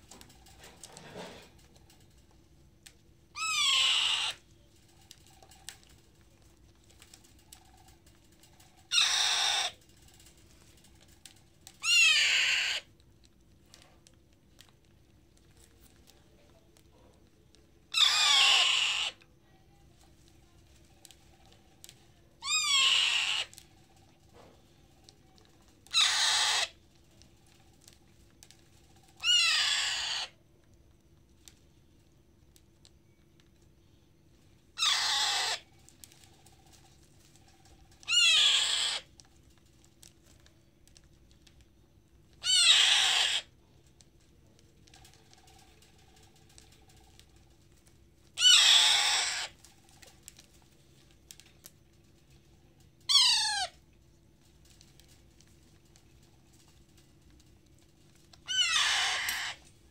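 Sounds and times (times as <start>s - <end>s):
parrot chick begging screeches: 3.4s - 4.4s, 8.9s - 9.8s, 11.8s - 12.9s, 17.9s - 19.2s, 22.4s - 23.5s, 25.9s - 26.8s, 29.2s - 30.3s, 34.8s - 35.6s, 38.0s - 39.1s, 42.4s - 43.5s, 48.4s - 49.6s, 53.1s - 53.8s, 58.4s - 59.6s.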